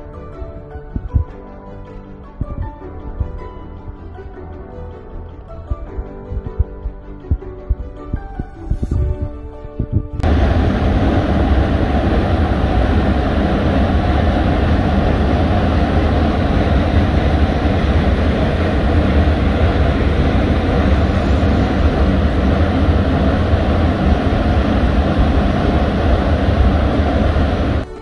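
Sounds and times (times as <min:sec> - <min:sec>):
waterfall rushing: 0:10.2 - 0:27.8.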